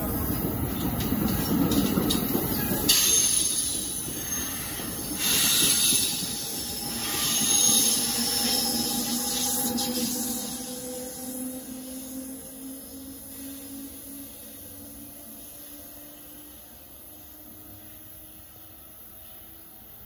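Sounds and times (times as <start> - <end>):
electric locomotive hum: 0.0 - 20.0
train wheels rumbling on rails: 0.0 - 20.0
high hissing squeals: 2.8 - 18.4.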